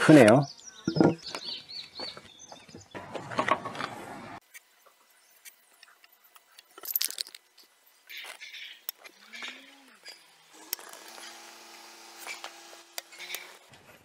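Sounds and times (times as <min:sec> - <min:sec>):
floorboards knocking and scraping: 0:00.9 - 0:01.2.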